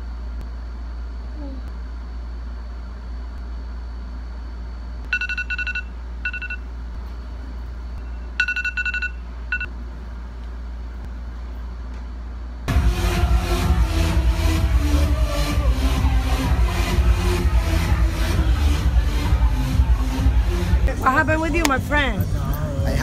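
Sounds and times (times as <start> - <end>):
low room hum: 0.0 - 23.0
rapid high alarm beeps: 5.1 - 6.7, 8.0 - 9.7.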